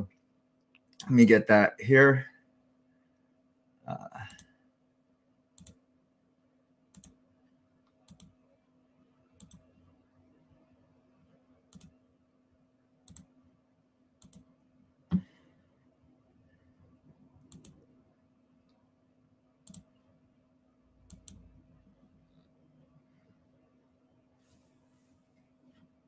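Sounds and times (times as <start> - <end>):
low electrical hum: 0.0 - 26.0
computer mouse clicks: 5.6 - 5.8, 6.9 - 7.2, 7.9 - 8.4, 9.4 - 9.7, 11.7 - 12.0, 13.0 - 13.3, 14.2 - 14.5, 17.4 - 17.8, 19.6 - 20.0, 21.0 - 21.5.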